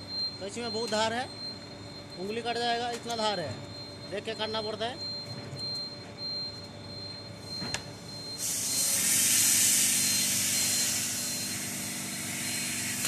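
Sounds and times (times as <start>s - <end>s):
low machine hum: 0.0s - 13.0s
loud steady hiss: 8.4s - 13.0s.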